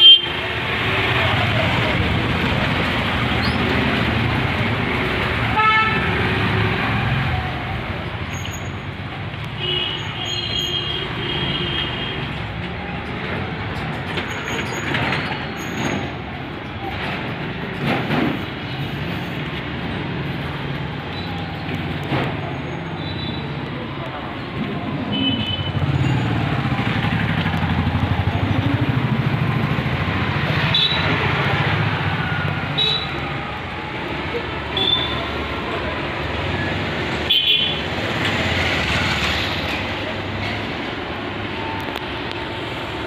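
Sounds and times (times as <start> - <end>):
vehicle horn: 0.0 - 0.4, 5.5 - 6.2, 34.8 - 35.2
street traffic: 0.0 - 43.0.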